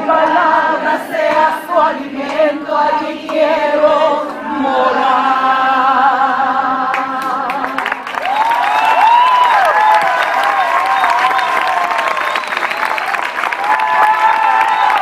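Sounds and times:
worship song singing: 0:00.0 - 0:09.1
people clapping: 0:06.9 - 0:15.0.

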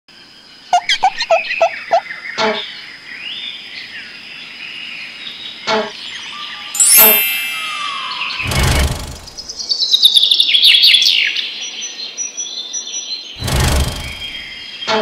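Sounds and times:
bird-like chirping: 0:00.7 - 0:03.4, 0:06.1 - 0:10.0, 0:13.4 - 0:15.0
short sharp sounds: 0:06.8 - 0:09.6, 0:13.4 - 0:14.5.

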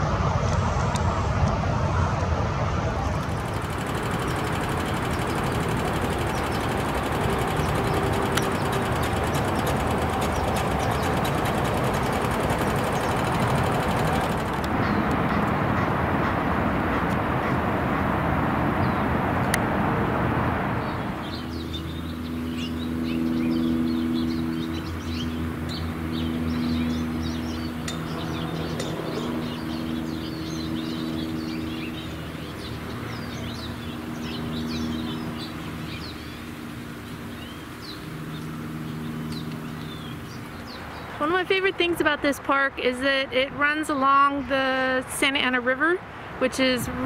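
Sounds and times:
freeway traffic rumble: 0:00.0 - 0:47.0
steady low hum: 0:02.8 - 0:16.1
songbirds chirping and twittering: 0:03.0 - 0:16.0, 0:18.8 - 0:19.1, 0:20.8 - 0:44.8
fast high ticking: 0:03.2 - 0:14.9.

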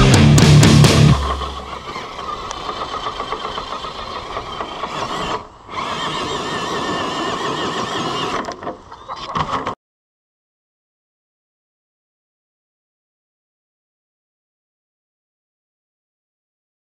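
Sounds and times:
electric motor whining: 0:00.9 - 0:08.6.

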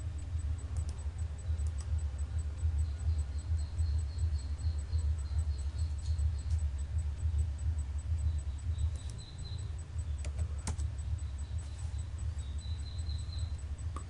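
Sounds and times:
steady low hum: 0:00.0 - 0:14.0
computer mouse clicks: 0:00.3 - 0:02.5, 0:08.8 - 0:11.3.

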